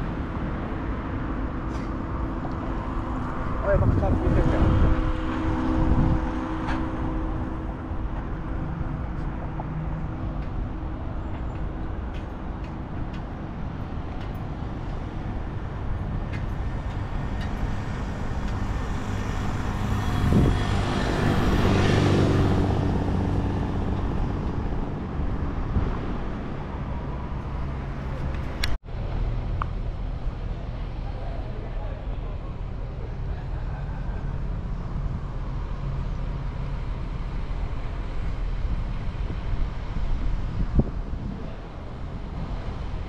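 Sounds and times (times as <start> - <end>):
road traffic noise: 0.0 - 43.0
vehicle passing: 15.7 - 28.7.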